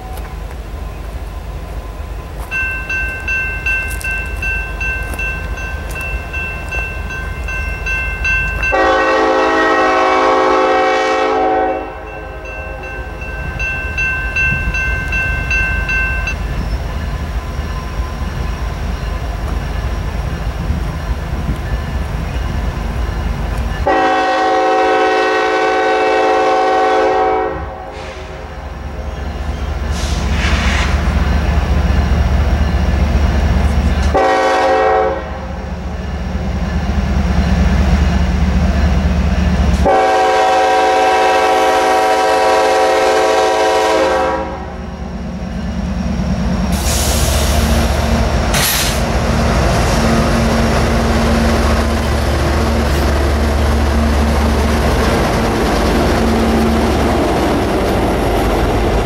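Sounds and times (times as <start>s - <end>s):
diesel locomotive horn blasts: 8.6s - 12.9s, 23.8s - 28.7s, 29.9s - 31.1s, 34.0s - 35.8s, 39.7s - 45.0s
diesel engines rumbling: 27.7s - 59.0s.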